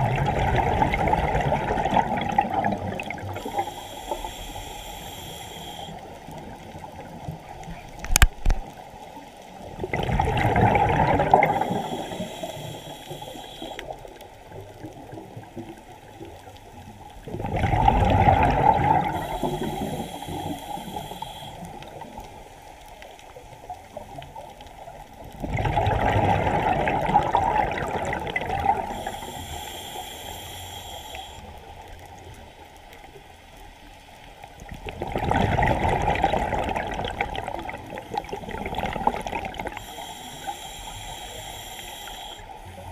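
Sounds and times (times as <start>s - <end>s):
exhaled bubbles rushing: 0.0s - 3.6s, 9.6s - 12.3s, 17.3s - 20.5s, 25.4s - 29.2s, 34.8s - 39.8s
thin high hiss: 3.3s - 6.1s, 11.5s - 14.0s, 19.0s - 21.8s, 28.9s - 31.5s, 39.7s - 42.8s.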